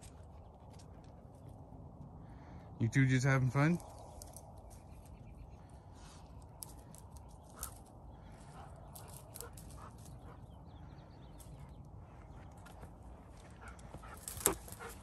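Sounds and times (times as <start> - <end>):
dogs snuffling and sniffing: 4.0 - 15.0.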